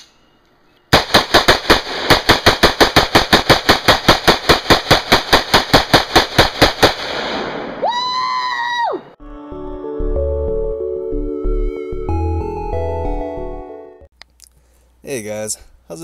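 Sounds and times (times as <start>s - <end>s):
automatic gunfire: 1.0s - 7.5s.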